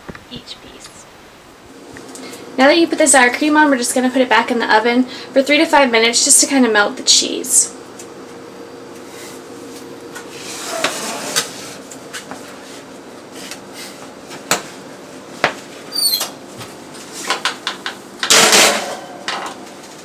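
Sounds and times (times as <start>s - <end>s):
short high squeak: 15.9s - 16.3s
metal baking sheet clattering: 18.2s - 19.6s.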